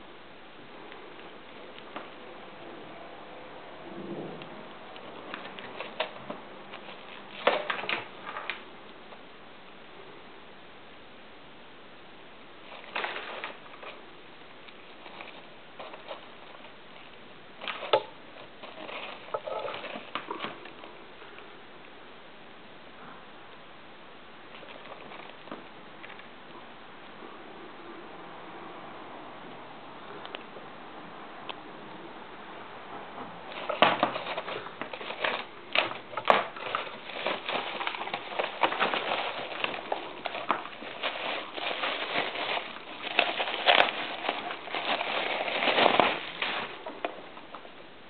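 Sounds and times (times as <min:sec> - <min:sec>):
bubble wrap crinkling: 0:04.9 - 0:08.7, 0:12.6 - 0:20.8, 0:33.5 - 0:47.6.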